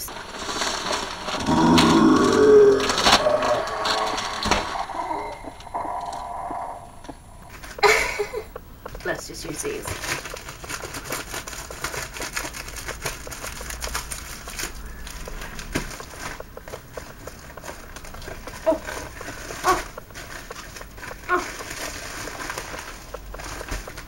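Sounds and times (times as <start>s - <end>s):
plastic crinkling and rustling: 0.0s - 6.4s, 7.5s - 24.0s
scissors cutting plastic: 7.6s - 24.0s.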